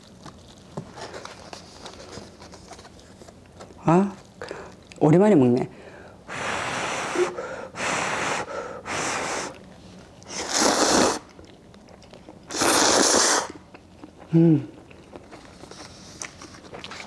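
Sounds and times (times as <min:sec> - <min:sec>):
person blowing on hot noodles: 0:06.3 - 0:09.6, 0:10.3 - 0:11.3, 0:12.5 - 0:13.6
loud noodle slurping: 0:10.3 - 0:11.3, 0:12.5 - 0:13.6.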